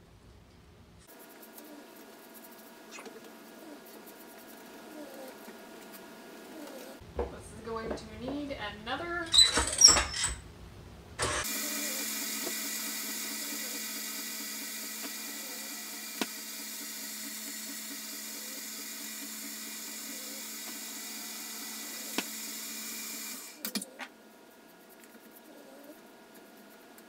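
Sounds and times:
stand mixer running: 11.2s - 23.6s.

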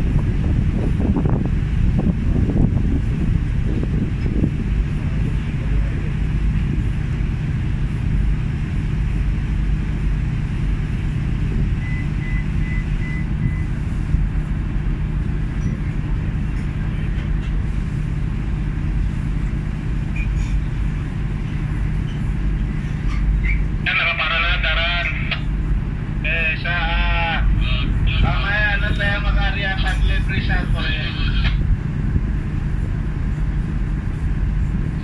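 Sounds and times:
wind on microphone: 0.0s - 9.2s, 29.8s - 35.0s
marine engines rumbling: 0.0s - 35.0s.

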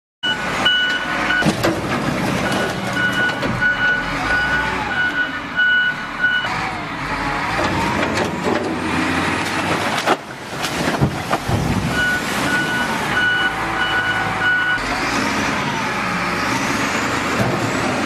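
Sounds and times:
reversing alarm beeping: 0.2s - 1.5s, 2.4s - 6.5s, 11.9s - 14.9s.

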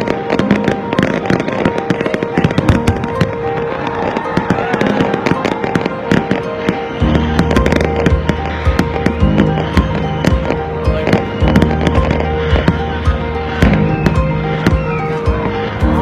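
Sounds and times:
fireworks crackling and banging: 0.0s - 16.0s
music with held notes: 0.0s - 16.0s
deep bass line: 15.3s - 16.0s.

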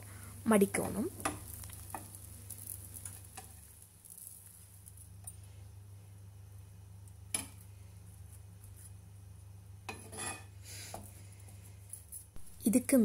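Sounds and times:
turner scraping a pan: 9.9s - 10.6s.

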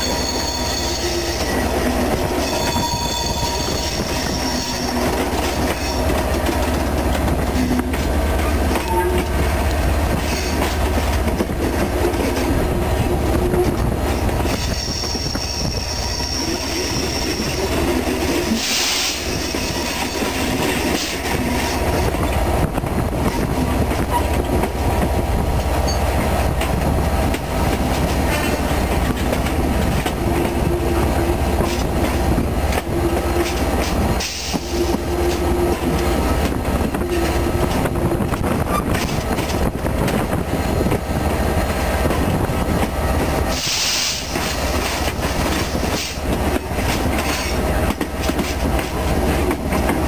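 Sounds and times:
high thin wheel squeal: 0.0s - 6.0s, 14.5s - 17.7s
diesel locomotive engine under power: 0.0s - 50.0s
wheels clicking over rail joints: 19.3s - 41.3s, 42.0s - 50.0s.

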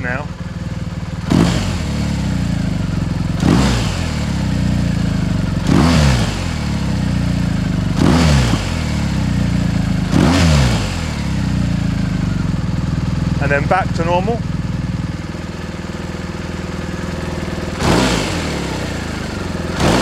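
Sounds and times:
motorcycle engine idling and revving: 0.0s - 20.0s.

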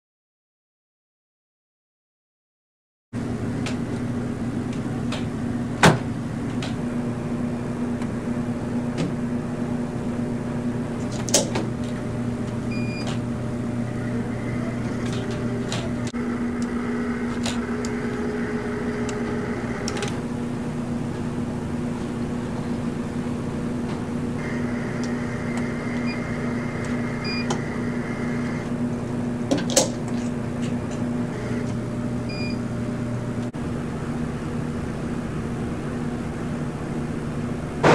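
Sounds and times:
electrical equipment hum: 3.2s - 37.9s.

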